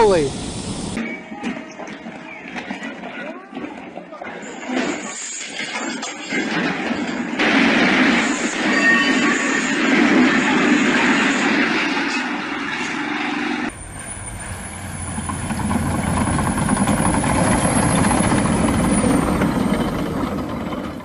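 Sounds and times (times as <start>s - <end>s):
bulldozer diesel engine under load: 13.7s - 21.0s
loud rough noise: 13.7s - 21.0s
tracks working through snow: 13.7s - 21.0s.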